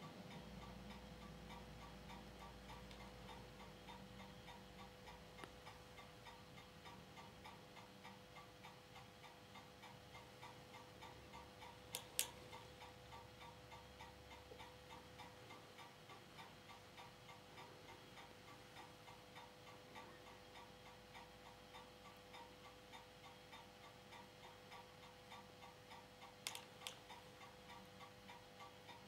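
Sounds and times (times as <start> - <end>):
projector hum: 0.0 - 29.0
projector ticking: 0.0 - 29.0
sharp projector clicks: 11.9 - 12.4, 26.4 - 27.1.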